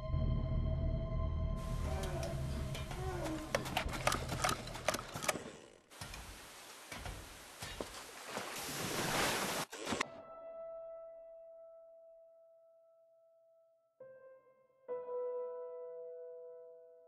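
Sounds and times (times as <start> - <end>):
water gushing and splashing: 5.9 - 10.0
sharp splashes and knocks: 6.0 - 10.0.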